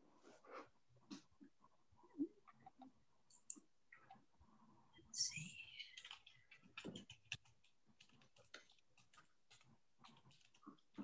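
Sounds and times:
keyboard typing: 0:05.8 - 0:11.0.

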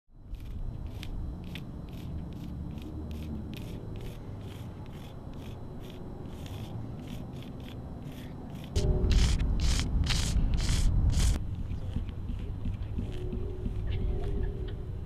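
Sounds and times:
chalk scraping on asphalt: 0:00.3 - 0:13.9
low rumble: 0:08.7 - 0:15.0.

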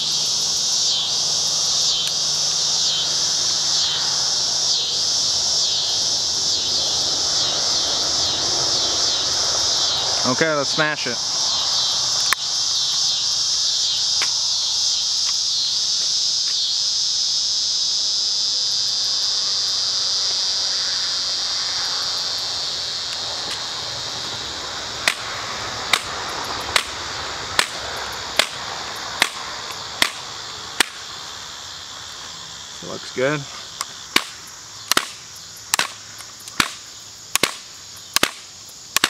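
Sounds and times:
crickets chirping: 0:00.0 - 0:39.0.

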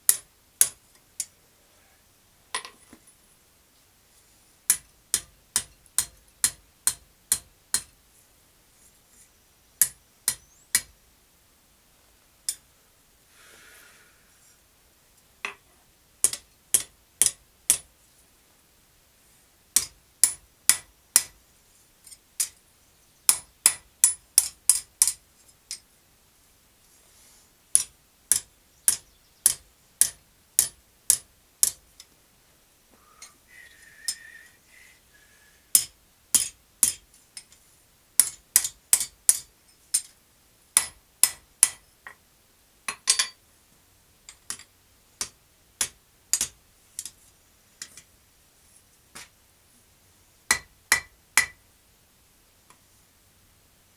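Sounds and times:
hammer striking metal on anvil: 0:35.8 - 0:37.0, 0:50.5 - 0:51.6.

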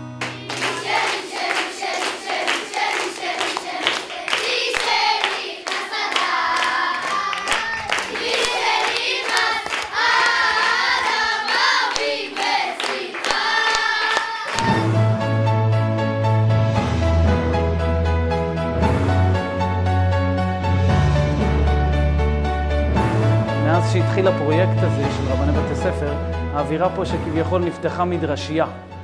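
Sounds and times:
hands clapping in rhythm: 0:00.1 - 0:15.0
boys singing together: 0:00.5 - 0:14.9.

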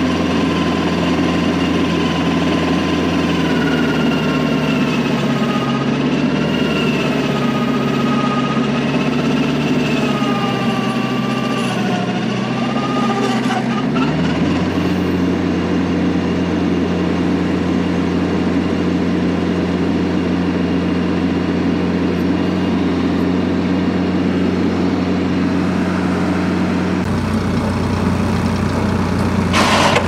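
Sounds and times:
wavering whine: 0:00.0 - 0:14.0
tractor diesel engine running: 0:00.0 - 0:30.0.

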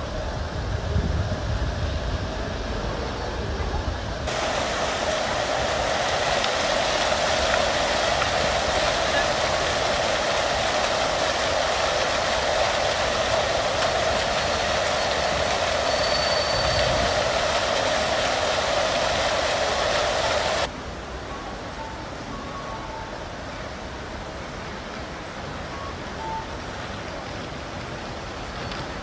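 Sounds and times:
fountain splashing into stone basin: 0:04.2 - 0:20.7.

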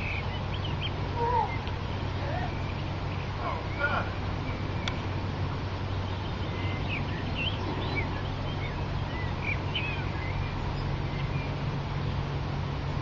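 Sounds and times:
small birds chirping: 0:00.0 - 0:12.4
steady low hum: 0:00.0 - 0:13.0.

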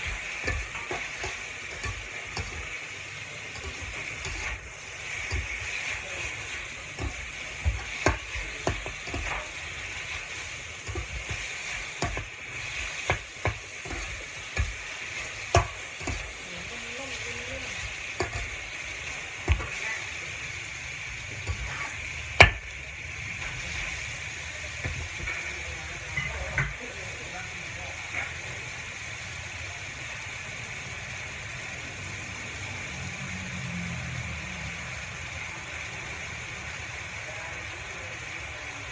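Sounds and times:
spatula clinking against pan: 0:00.0 - 0:02.6
metal spatula scraping: 0:00.0 - 0:20.0, 0:21.3 - 0:22.7
food sizzling in a wok: 0:00.0 - 0:38.9.

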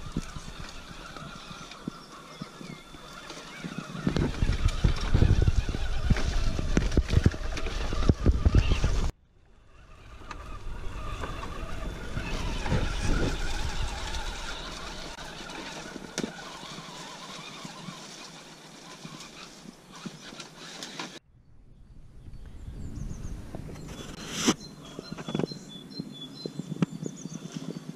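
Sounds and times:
leaves rustling: 0:00.0 - 0:21.2
rc truck motor whining: 0:00.0 - 0:21.2
twigs clicking under tyres: 0:00.0 - 0:21.2.

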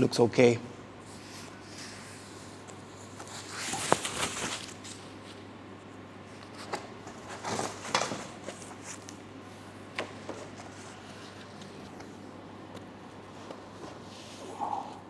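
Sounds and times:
packing sheet rustling: 0:03.2 - 0:05.1.

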